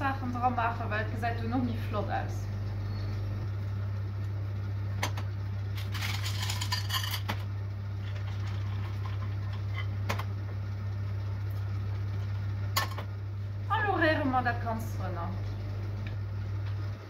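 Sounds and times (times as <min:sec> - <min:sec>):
low hum: 0:00.0 - 0:17.0
candy rattling into metal bowl: 0:05.8 - 0:07.3.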